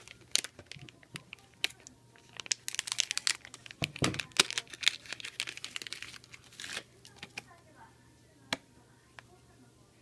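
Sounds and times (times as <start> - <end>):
plastic wrapper crinkling: 0.0 - 7.6.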